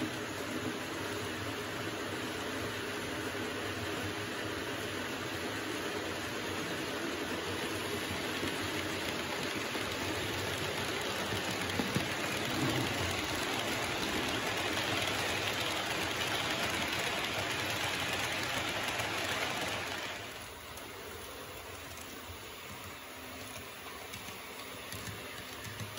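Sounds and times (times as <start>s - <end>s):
model train wheels rattling on rails: 6.6s - 25.9s.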